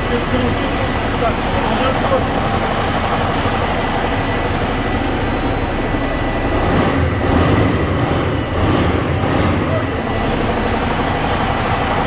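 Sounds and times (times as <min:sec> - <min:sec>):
diesel truck engine rumbling: 0:00.0 - 0:12.0.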